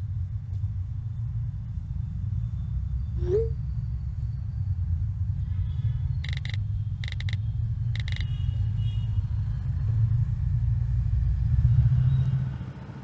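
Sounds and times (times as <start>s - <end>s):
low steady rumble: 0.0s - 11.8s
electronic chirps: 6.2s - 7.4s.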